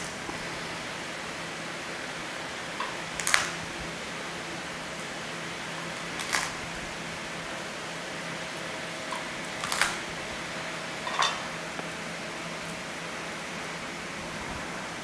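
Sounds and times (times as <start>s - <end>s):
fan humming: 0.0s - 15.0s.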